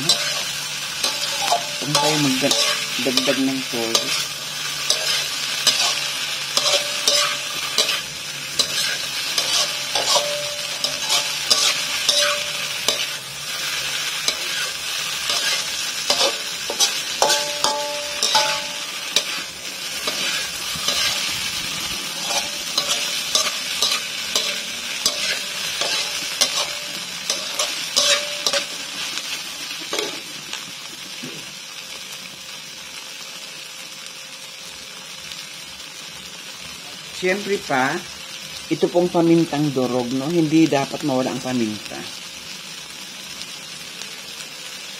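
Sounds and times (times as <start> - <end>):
tofu sizzling in a frying pan: 0.0 - 44.9.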